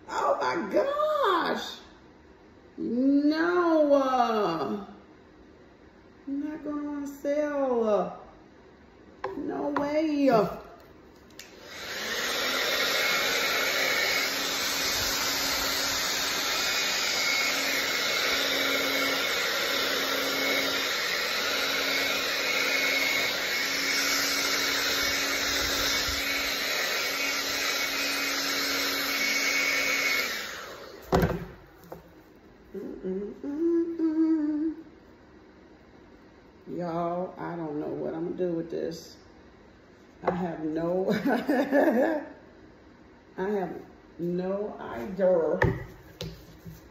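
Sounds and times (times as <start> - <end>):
hair dryer running: 9.2 - 32.1.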